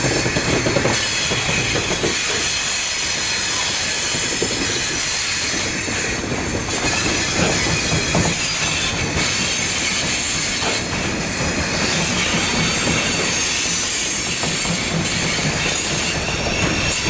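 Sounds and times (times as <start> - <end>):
clacks over rail joints: 0.0 - 17.0
train wheels on rail: 0.0 - 17.0
high wheel squeal: 6.7 - 11.0, 11.6 - 17.0.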